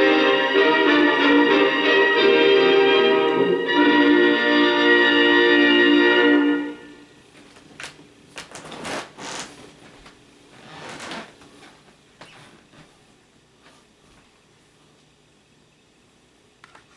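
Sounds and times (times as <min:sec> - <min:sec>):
music chord: 0:00.0 - 0:07.2.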